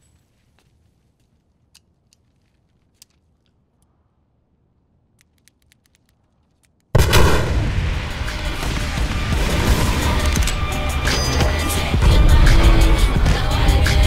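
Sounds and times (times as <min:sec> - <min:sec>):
building explosion rumbling: 0:07.0 - 0:10.4.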